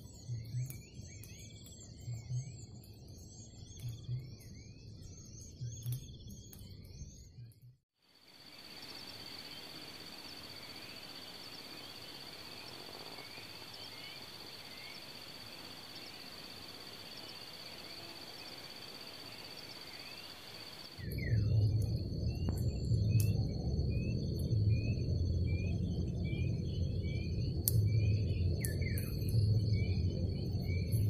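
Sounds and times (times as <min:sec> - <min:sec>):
constant hiss: 0:08.1 - 0:21.2
high insect drone: 0:08.1 - 0:31.0.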